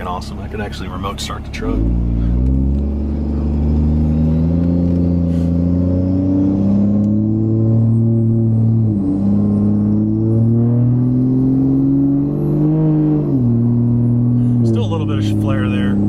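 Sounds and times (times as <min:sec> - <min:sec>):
diesel engine accelerating: 0:00.0 - 0:16.0.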